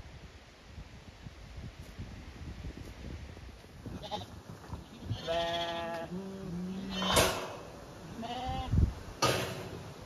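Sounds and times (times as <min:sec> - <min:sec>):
sheep bleating: 0:05.0 - 0:07.2, 0:08.0 - 0:08.7.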